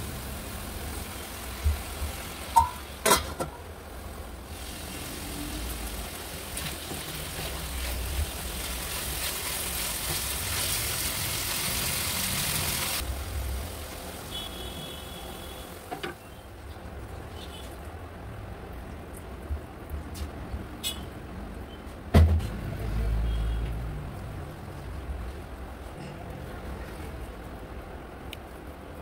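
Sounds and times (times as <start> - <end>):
chicken sizzling in oil: 0.0 - 3.0, 3.9 - 16.4.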